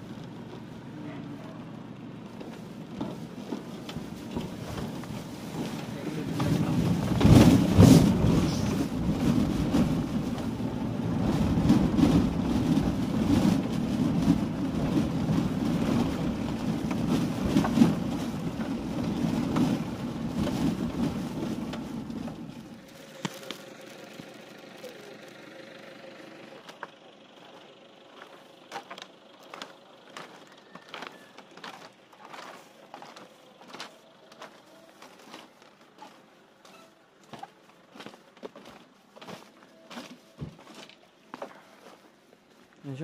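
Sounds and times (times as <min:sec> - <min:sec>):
vehicle engine running: 0:00.0 - 0:43.0.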